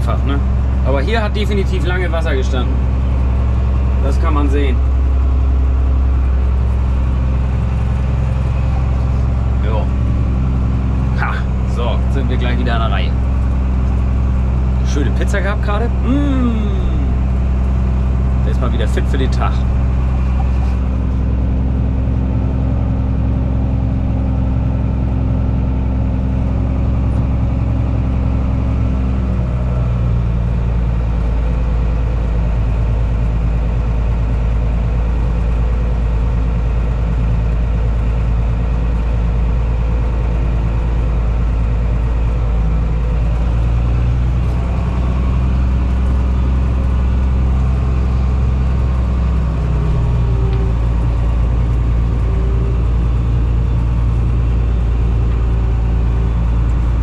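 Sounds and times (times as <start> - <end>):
tractor engine running: 0.0 - 57.0.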